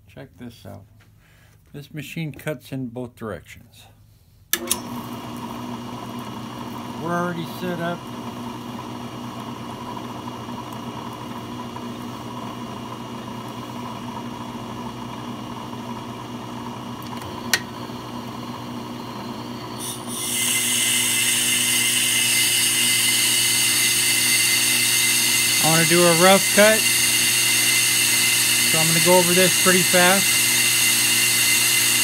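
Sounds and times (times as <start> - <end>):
metal cutting scraping hiss: 19.8 - 27.0
brake lathe motor hum: 19.8 - 32.0.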